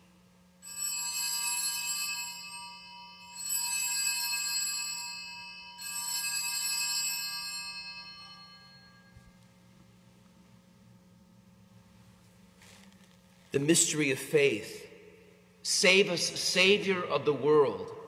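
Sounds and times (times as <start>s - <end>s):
altar bells ringing: 0.6s - 9.3s.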